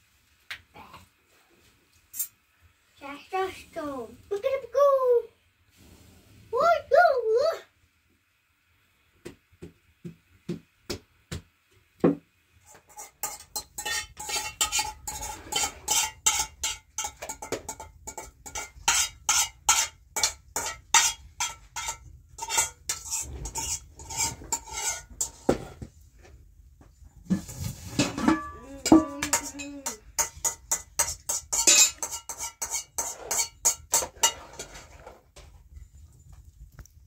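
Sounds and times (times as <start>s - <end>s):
metal utensil knocking cookware: 12.9s - 25.4s, 28.0s - 34.5s.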